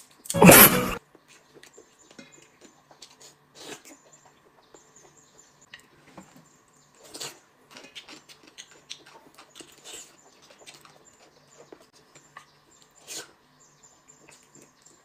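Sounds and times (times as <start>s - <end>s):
chewing and mouth sounds: 7.0s - 13.3s.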